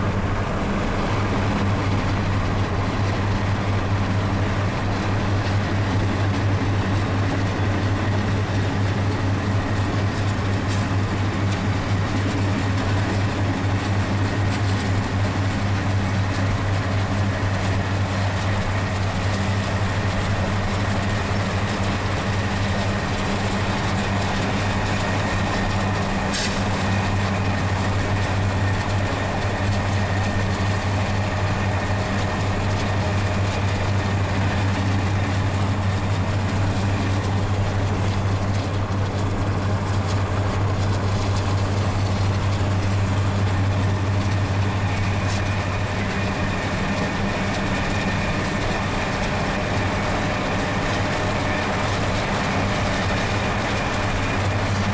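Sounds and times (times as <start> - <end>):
diesel locomotive drone: 0.0 - 54.9
train rolling noise: 0.0 - 54.9.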